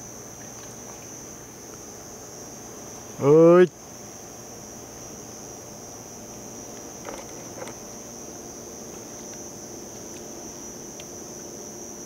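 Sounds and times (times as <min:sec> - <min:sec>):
insect chirring: 0:00.0 - 0:12.0
faint ticks: 0:10.9 - 0:11.2.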